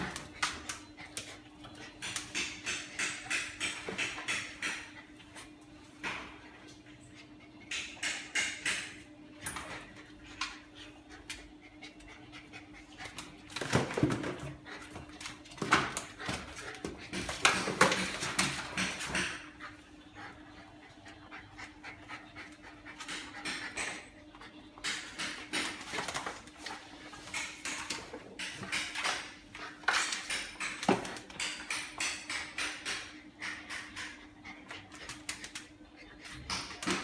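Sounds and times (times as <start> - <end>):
dog panting: 19.4 - 23.7.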